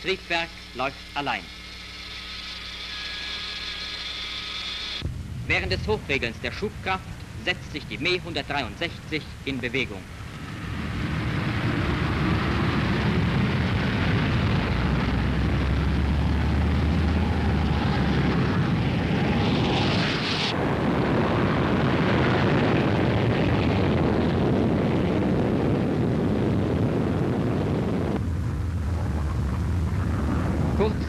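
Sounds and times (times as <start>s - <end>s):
rocket motor rushing roar: 0.0s - 31.0s.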